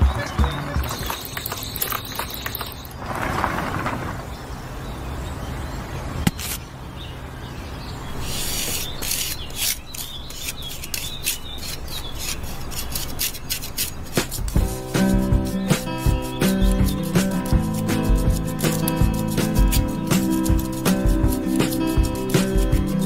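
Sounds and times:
small scrapes and clicks: 6.3s - 6.6s, 8.2s - 22.8s
scraping of cement mix: 8.3s - 23.0s.

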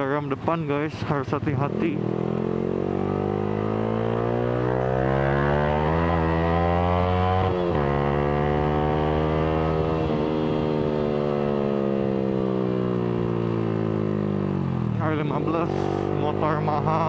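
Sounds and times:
motorcycle engine accelerating: 0.0s - 17.0s.

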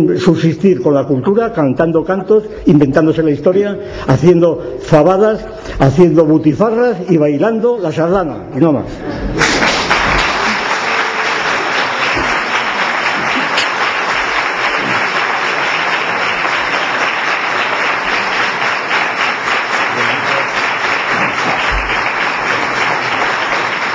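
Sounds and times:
audience applauding: 9.3s - 23.9s.

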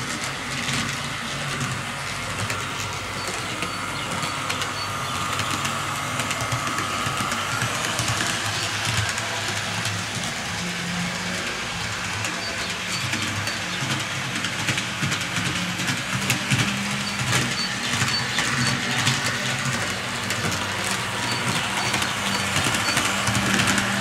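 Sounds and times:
electric motors humming: 0.0s - 24.0s
wheels clicking over rail joints: 11.0s - 24.0s.

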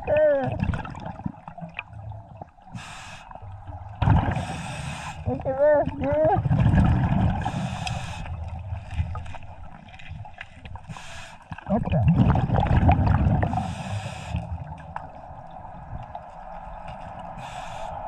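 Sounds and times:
diver exhaling bubbles: 0.0s - 3.0s, 3.7s - 9.2s, 10.9s - 16.2s.

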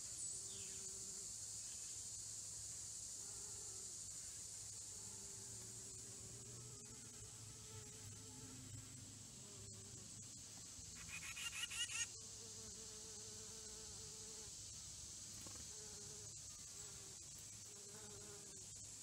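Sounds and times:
rapidly pulsing insect call: 0.0s - 19.0s
high-pitched insect drone: 3.2s - 19.0s.

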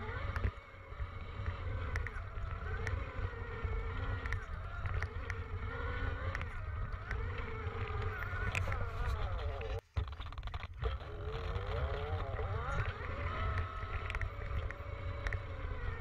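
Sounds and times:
electric motor whine: 0.0s - 16.0s
sharp clicks: 0.0s - 16.0s
wind rumble on microphone: 0.0s - 16.0s.

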